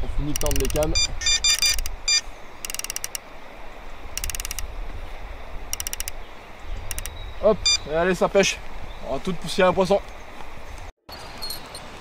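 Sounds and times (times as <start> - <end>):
fishing reel clicking buzz: 0.3 - 3.2, 4.2 - 4.7, 5.7 - 6.2, 6.9 - 7.1.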